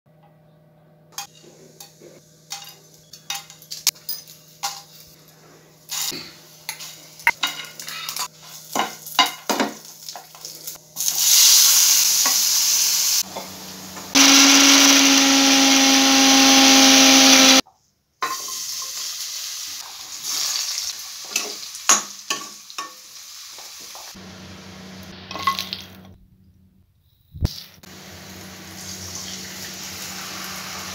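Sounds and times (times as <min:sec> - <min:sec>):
oil sizzling in a pan: 0:05.8 - 0:15.2, 0:18.2 - 0:26.0, 0:27.5 - 0:30.9
loud hiss: 0:11.1 - 0:13.2
mixer grinder motor running: 0:13.2 - 0:17.6, 0:24.2 - 0:25.2, 0:27.8 - 0:30.9.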